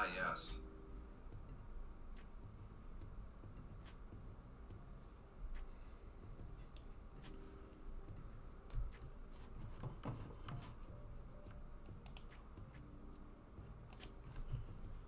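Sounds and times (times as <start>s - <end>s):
low steady hum: 0.0s - 15.0s
faint clicks and taps: 8.1s - 12.9s, 13.9s - 15.0s.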